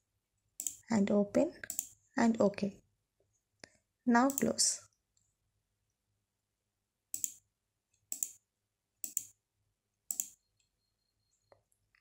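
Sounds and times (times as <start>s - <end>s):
computer mouse button clicks: 7.2s - 7.4s, 9.0s - 9.3s, 10.1s - 10.4s.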